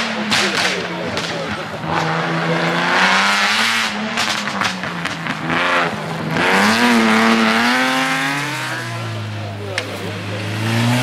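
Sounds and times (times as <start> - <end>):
exhaust cracks: 0.0 - 11.0
rally car engine revving: 0.0 - 11.0.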